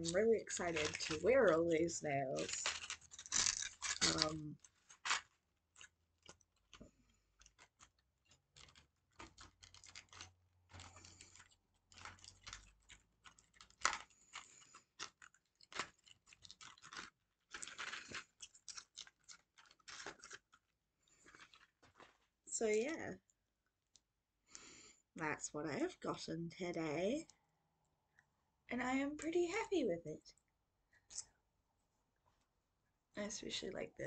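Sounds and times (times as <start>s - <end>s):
packaging crinkling: 0.0s - 1.7s, 2.4s - 22.3s.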